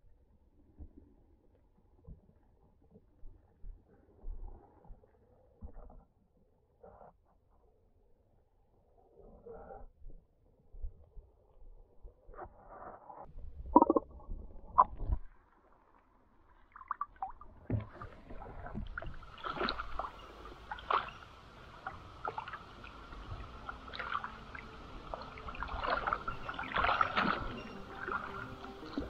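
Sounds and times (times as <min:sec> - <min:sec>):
small water splashes and drips: 0:14.9 - 0:29.0
stream trickling over stones: 0:16.5 - 0:29.0.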